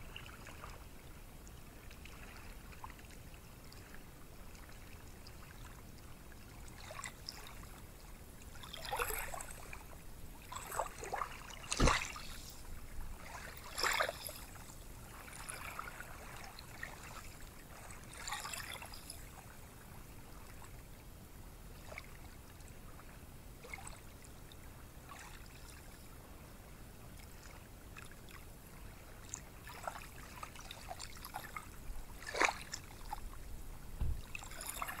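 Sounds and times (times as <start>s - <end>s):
small waves washing onto beach: 8.6s - 19.2s.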